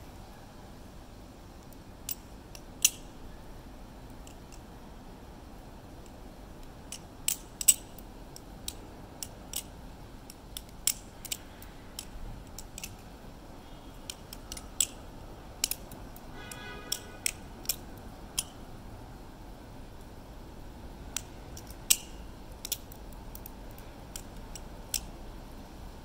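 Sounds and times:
balisong trainer metal clicks: 1.6 - 3.1, 6.0 - 13.1, 14.0 - 15.0, 15.6 - 17.8, 18.4 - 18.6, 21.1 - 25.2.

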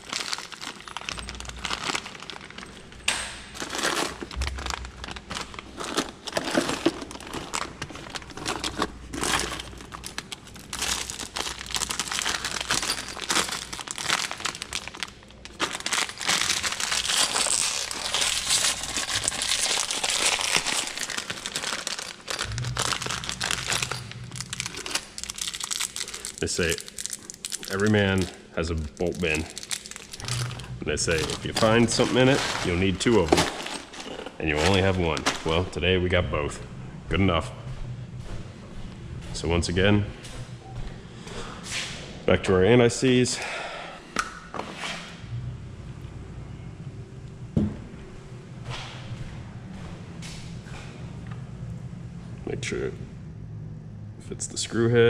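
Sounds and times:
plastic bag crinkling: 0.0 - 35.8
screws and bolts rattling: 10.8 - 14.4.

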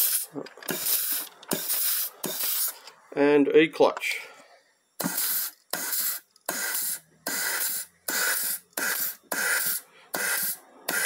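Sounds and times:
compressed air hissing blasts: 0.0 - 2.8, 5.0 - 11.0.

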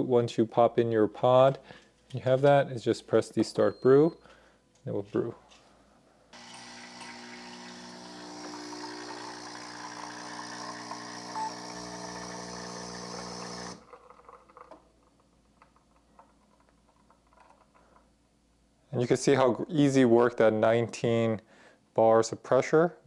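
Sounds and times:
espresso machine pump humming: 6.4 - 14.4.

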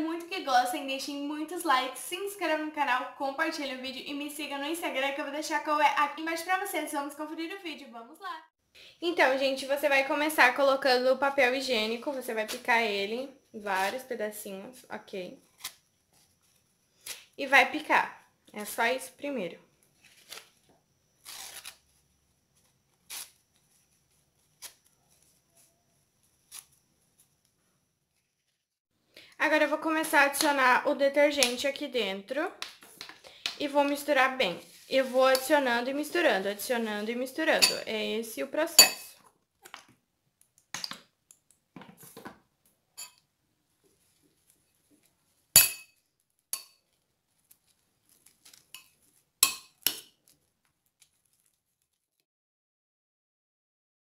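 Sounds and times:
toilet paper tearing: 21.2 - 22.0, 22.9 - 23.5
metal spoon clinking glass bowl: 37.6 - 37.9, 38.8 - 39.1, 43.0 - 43.2, 45.6 - 46.0, 46.6 - 46.8, 48.8 - 50.1.

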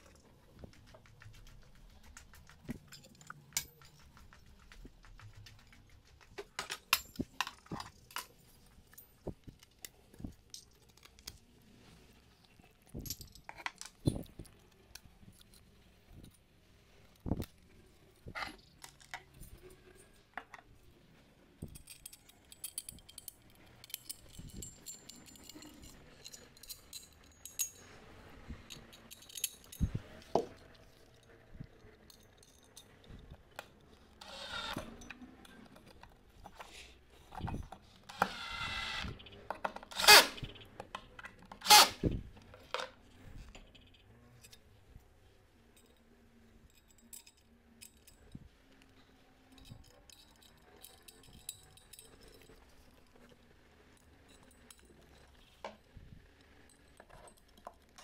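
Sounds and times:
cordless drill driving screws: 34.2 - 34.8, 38.1 - 39.1, 39.9 - 40.4, 41.6 - 42.0.

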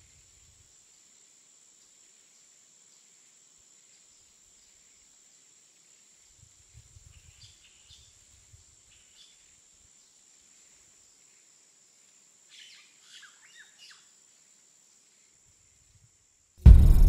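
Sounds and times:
insect drone: 0.0 - 17.0
low rumble: 16.6 - 17.0.

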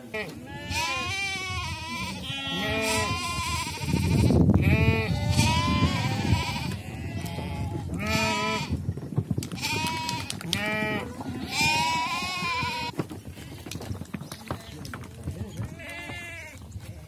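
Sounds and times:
sheep bleating: 0.1 - 8.8, 9.6 - 13.6, 15.7 - 16.6.

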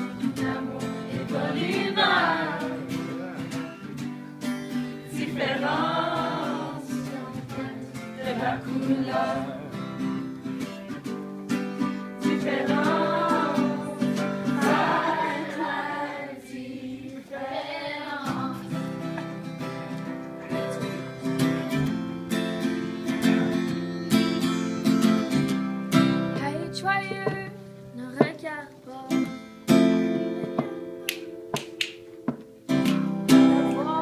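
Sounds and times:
people singing: 0.0 - 4.1, 4.7 - 10.3, 12.0 - 22.0, 33.3 - 34.0
strummed acoustic guitar: 0.0 - 16.6, 17.4 - 34.0.

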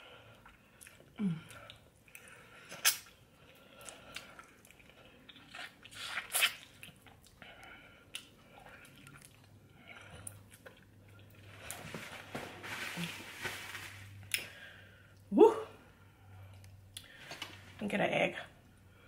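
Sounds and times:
person chewing wetly: 0.3 - 11.6.

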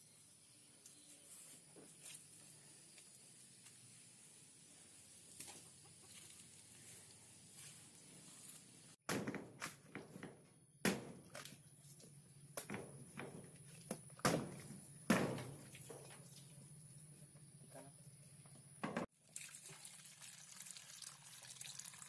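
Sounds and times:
machete chopping coconut husk: 10.8 - 11.6, 13.9 - 15.6.

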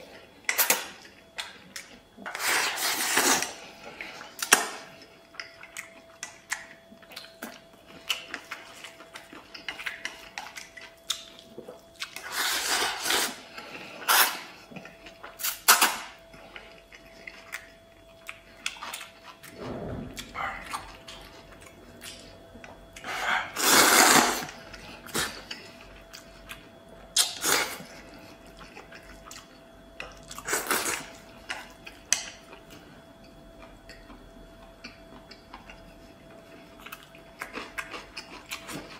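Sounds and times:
faint steady hum: 0.0 - 38.9
chewing: 0.4 - 38.9
noodles slurped: 23.5 - 24.5.

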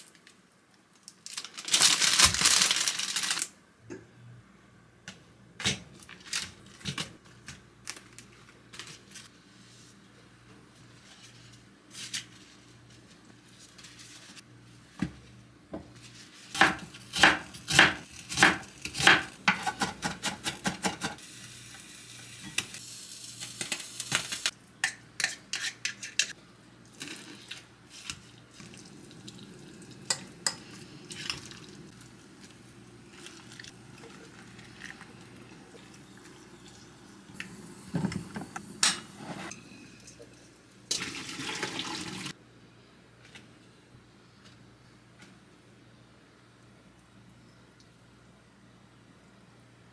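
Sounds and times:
sizzling hiss: 21.2 - 24.5.

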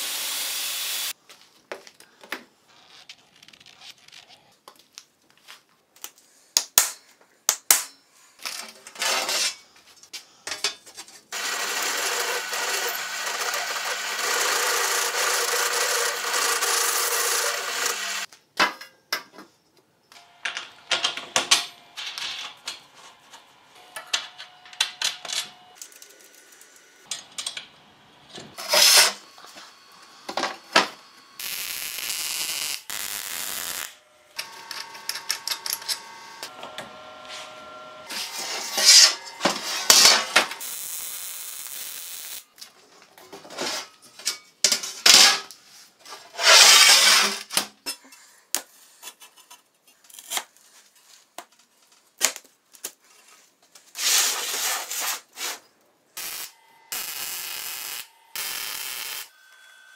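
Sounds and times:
power tool running: 0.0 - 1.1, 11.3 - 18.3, 28.5 - 42.4, 56.2 - 59.9.

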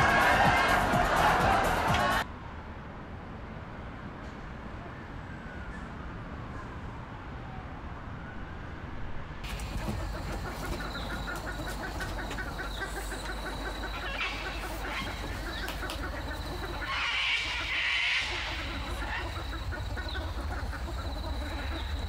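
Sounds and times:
steady high whine: 9.5 - 22.0.

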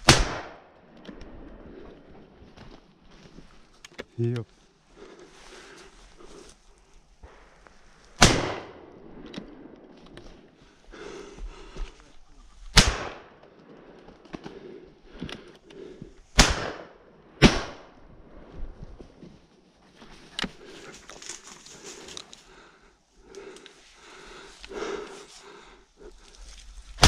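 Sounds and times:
shotgun shots: 0.0 - 0.6, 8.2 - 8.8, 12.7 - 13.3, 16.4 - 17.9.

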